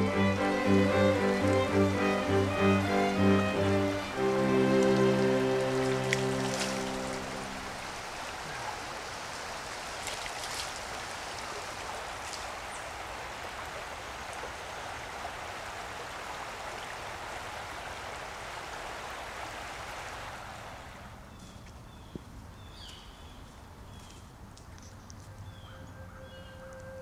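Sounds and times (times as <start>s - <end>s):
rocky creek running: 0.0s - 21.2s
water splashing in hands: 0.8s - 8.2s, 9.6s - 12.5s.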